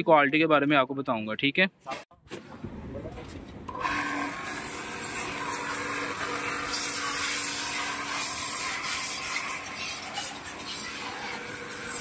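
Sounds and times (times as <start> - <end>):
pressure washer humming and hissing: 3.7 - 12.0.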